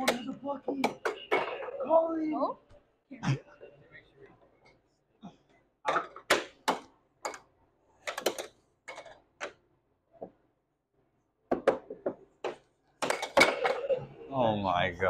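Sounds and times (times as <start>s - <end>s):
air hockey puck clacking: 0.0s - 1.6s, 5.9s - 9.6s.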